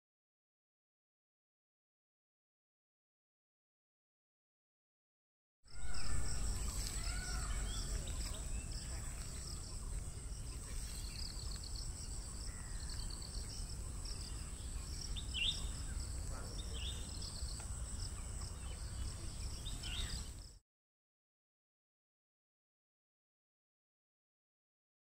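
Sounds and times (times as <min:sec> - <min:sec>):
bird chirping: 0:05.7 - 0:20.6
insects buzzing and trilling: 0:05.7 - 0:20.6.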